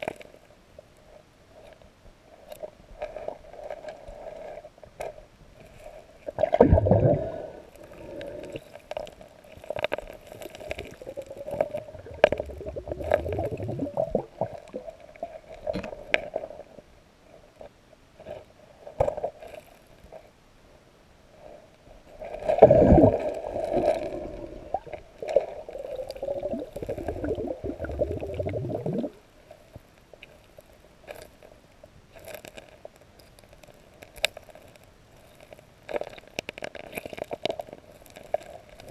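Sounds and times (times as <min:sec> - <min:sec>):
water gurgling underwater: 0:06.4 - 0:08.6, 0:10.6 - 0:15.1, 0:22.4 - 0:29.2.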